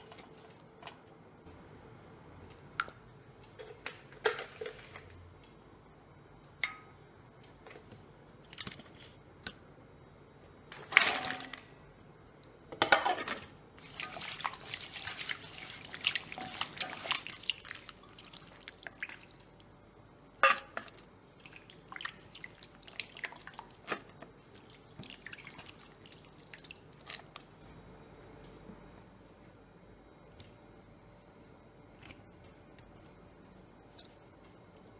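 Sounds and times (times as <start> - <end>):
water splashing and dripping: 13.8 - 19.6, 21.4 - 27.4.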